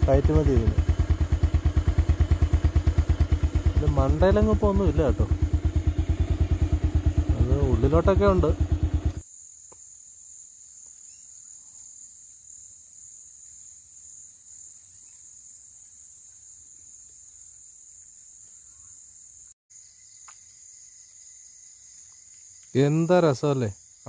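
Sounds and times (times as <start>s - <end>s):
insects chirring: 0.1s - 24.0s
faint ticks: 21.9s - 22.8s.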